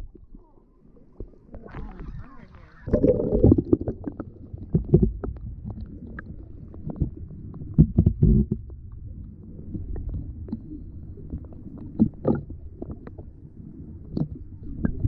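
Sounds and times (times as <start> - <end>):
underwater rush: 0.0 - 15.0
low underwater thumps: 1.2 - 9.2.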